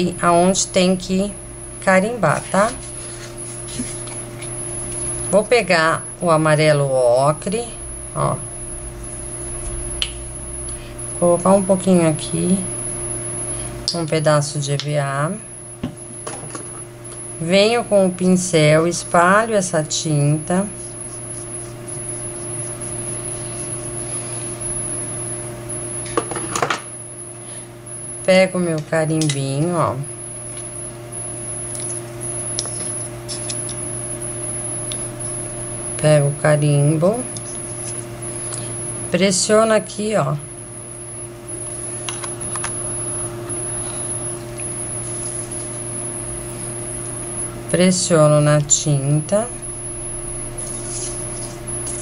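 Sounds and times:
faint high whine: 0.0s - 52.0s
steady low hum: 0.0s - 52.0s.

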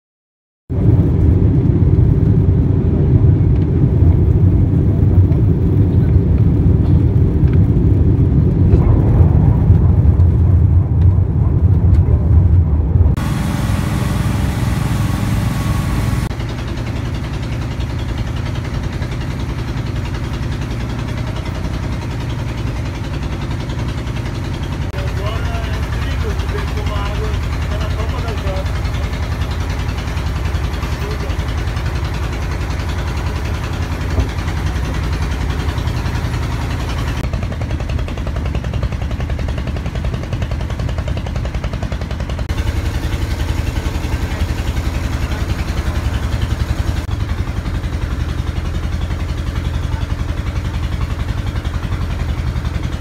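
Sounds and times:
aircraft drone in flight: 0.7s - 53.0s
boat engine humming: 0.7s - 53.0s.

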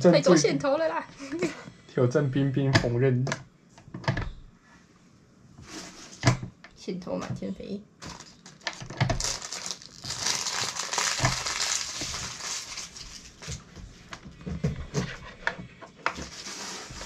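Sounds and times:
plastic packaging crinkling: 8.0s - 13.7s, 16.3s - 17.0s.

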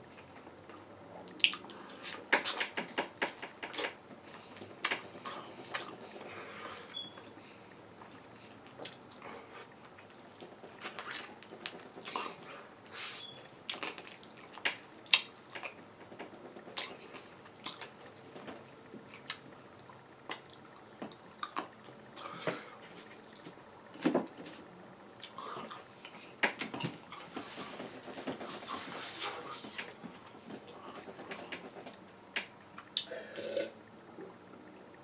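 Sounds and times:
wet chewing and lip smacks: 1.3s - 2.7s, 13.7s - 15.8s, 16.8s - 17.9s.

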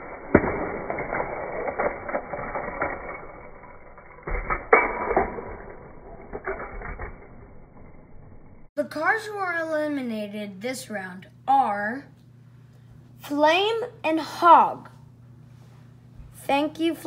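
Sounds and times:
toy cars rolling on plastic track: 0.0s - 8.4s.

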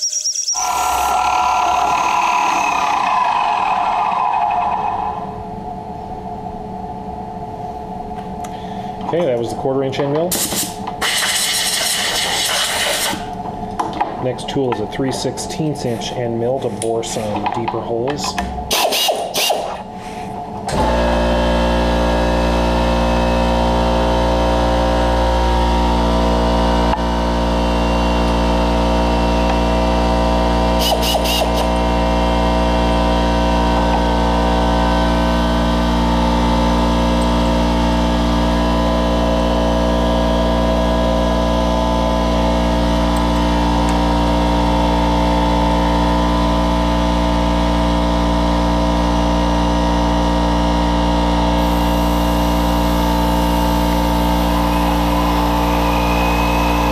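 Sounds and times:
milling machine spindle running: 51.4s - 56.9s.

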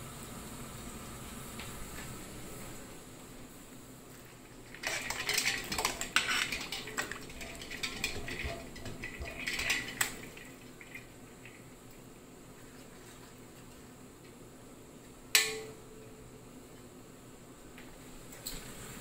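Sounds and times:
water sloshing: 4.5s - 11.6s.

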